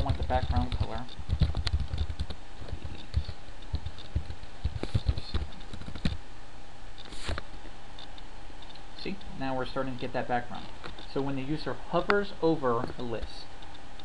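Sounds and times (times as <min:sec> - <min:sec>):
computer keyboard typing: 0:00.0 - 0:06.2.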